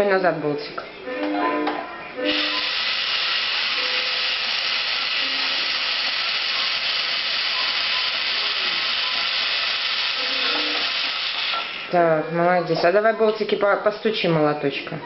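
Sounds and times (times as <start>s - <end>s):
toy drill whirring: 2.2s - 11.8s.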